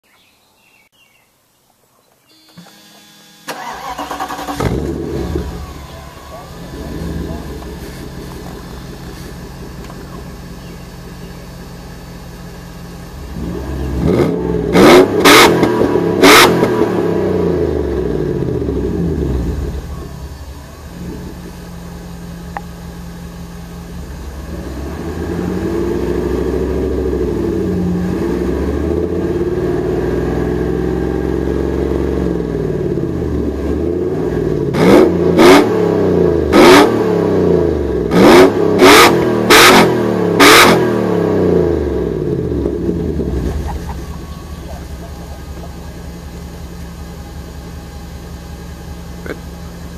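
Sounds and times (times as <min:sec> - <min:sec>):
car engine revving: 0:02.9 - 0:49.9.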